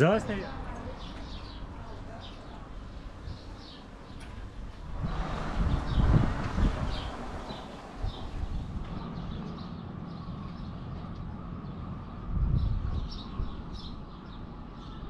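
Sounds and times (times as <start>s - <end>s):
birds chirping: 0.0s - 15.0s
steady low rumble: 4.5s - 14.7s.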